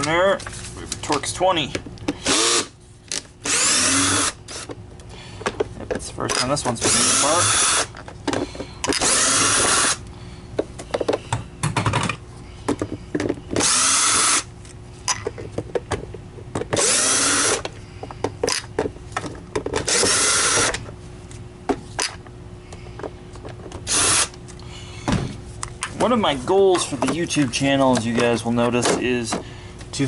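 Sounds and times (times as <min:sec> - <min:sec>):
cordless drill whirring: 0:02.2 - 0:02.7, 0:03.4 - 0:04.7, 0:06.8 - 0:07.9, 0:08.9 - 0:10.0, 0:13.6 - 0:14.5, 0:16.8 - 0:17.6, 0:19.8 - 0:20.8, 0:23.9 - 0:24.4
plastic parts clicking and knocking: 0:10.8 - 0:13.7, 0:17.6 - 0:20.8.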